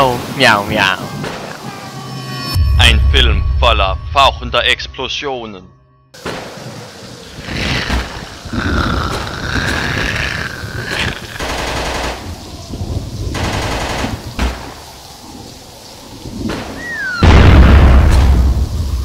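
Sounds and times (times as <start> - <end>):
low rumble: 2.6 - 5.7
machine-gun fire bursts: 11.4 - 12.3, 13.4 - 14.5
wavering high cry: 16.8 - 17.3.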